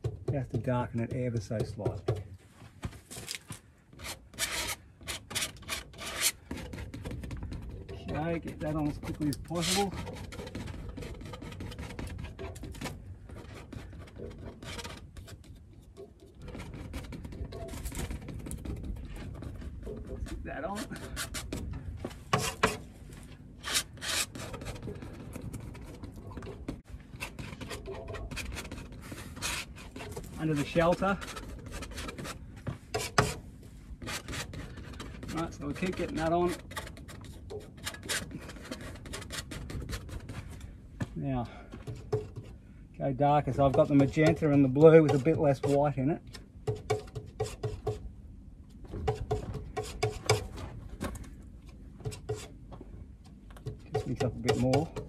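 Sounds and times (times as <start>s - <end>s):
palette knife scraping paint: 4.0s - 21.6s, 23.6s - 33.4s, 34.0s - 40.6s, 43.5s - 45.9s, 53.8s - 55.0s
palette knife tapping and scraping: 53.6s - 55.0s.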